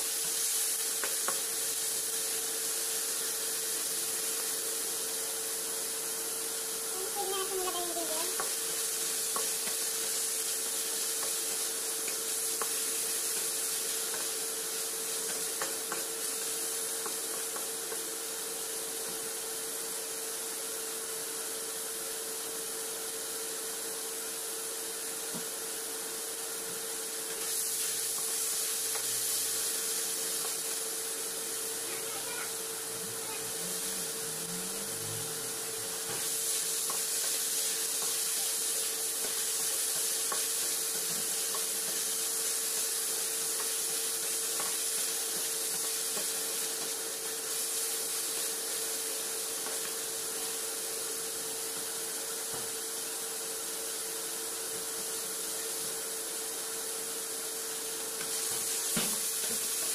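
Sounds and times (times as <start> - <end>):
meat sizzling in a wok: 0.0 - 59.9
steady hum: 27.6 - 36.2.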